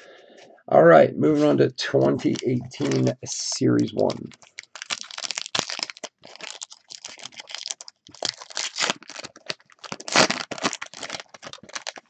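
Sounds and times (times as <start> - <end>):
foil wrapper crinkling and tearing: 2.1 - 3.2, 3.8 - 12.0.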